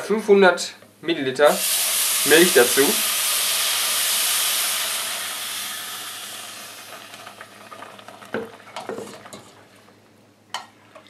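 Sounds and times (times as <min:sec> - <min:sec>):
milk sizzling in hot pot: 0:01.6 - 0:09.9.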